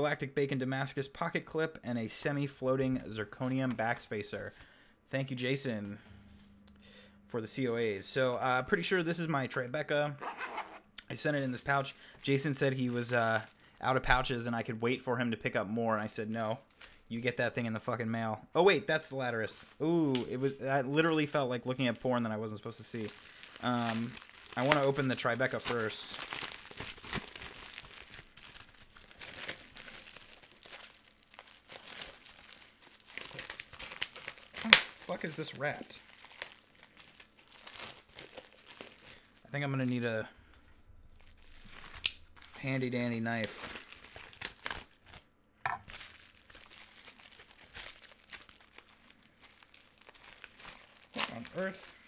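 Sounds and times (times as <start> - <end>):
bubble wrap and tape crinkling: 11.5 - 13.9, 19.1 - 40.0, 41.1 - 52.0
tape tearing: 33.2 - 35.2, 51.0 - 51.8.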